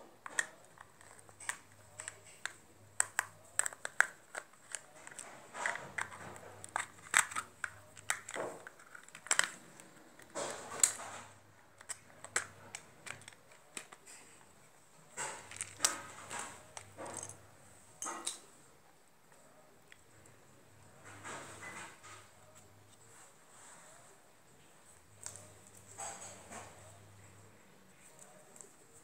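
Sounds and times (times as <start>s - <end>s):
plastic clicks and scraping rattles: 0.2s - 17.4s.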